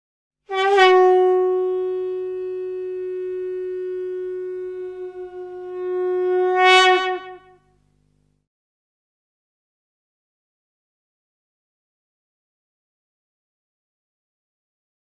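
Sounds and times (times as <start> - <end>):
long horn-like wind instrument note: 0.5 - 7.7.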